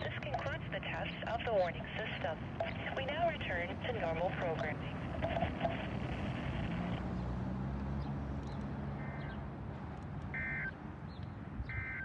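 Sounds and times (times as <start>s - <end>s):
radio voice with hiss: 0.0s - 7.0s
short electronic beeps: 10.4s - 10.8s, 11.7s - 12.0s.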